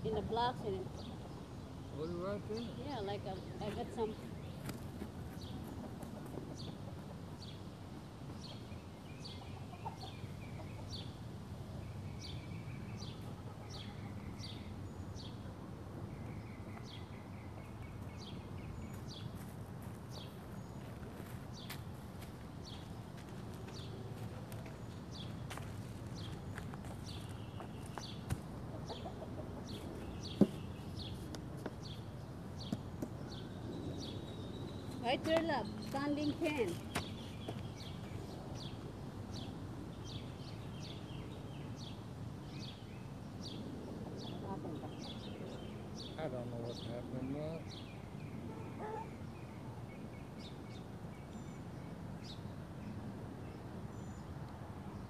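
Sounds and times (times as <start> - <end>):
chickens clucking: 9.3 - 11.0, 27.2 - 30.5.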